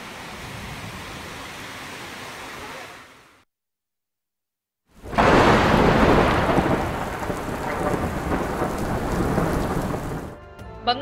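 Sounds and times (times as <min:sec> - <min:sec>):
heavy rain pouring: 0:00.0 - 0:03.4, 0:05.0 - 0:10.4
thunder rumbling: 0:05.0 - 0:10.4.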